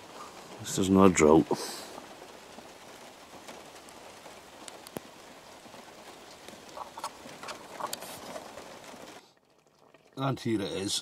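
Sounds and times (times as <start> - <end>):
raindrop ticks: 0.0 - 11.0
steady rain hiss: 0.0 - 11.0.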